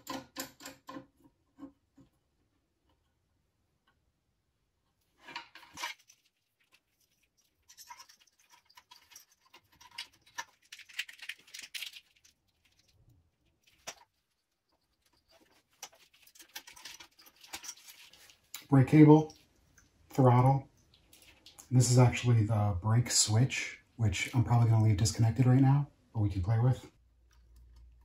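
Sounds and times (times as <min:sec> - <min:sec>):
hands handling cables and hardware: 0:05.1 - 0:18.7.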